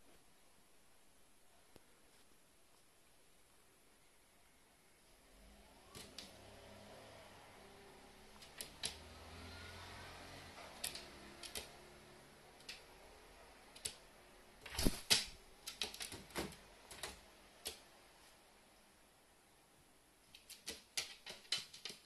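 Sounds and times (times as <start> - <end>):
bird feet and beak tapping: 10.6 - 13.0, 14.7 - 17.9, 20.3 - 22.0.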